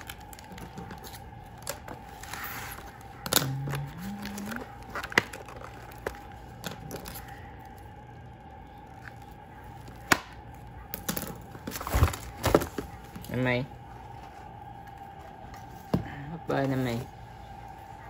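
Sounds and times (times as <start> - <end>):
plastic packaging crinkle: 0.0 - 13.4.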